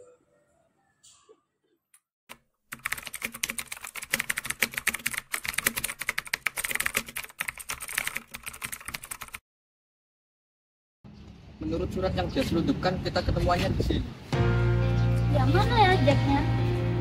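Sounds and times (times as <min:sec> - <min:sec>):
rapid keyboard typing: 0:02.7 - 0:09.4.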